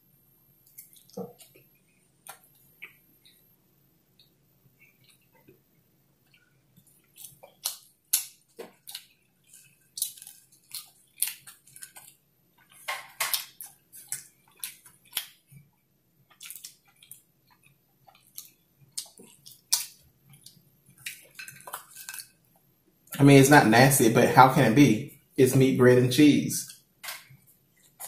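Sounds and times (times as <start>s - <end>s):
mouth chewing food: 6.2s - 22.6s.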